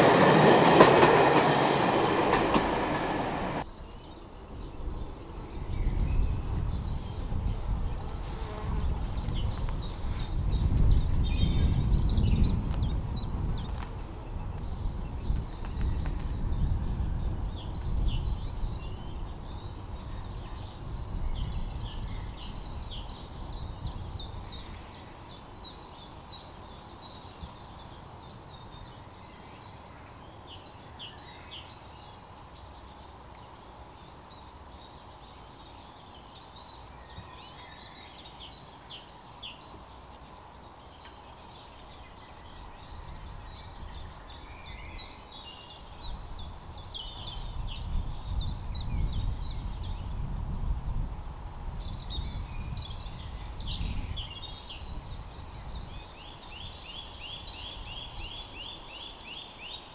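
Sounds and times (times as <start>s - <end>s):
diesel locomotive rumbling: 0.0s - 3.6s
songbirds singing: 0.0s - 59.9s.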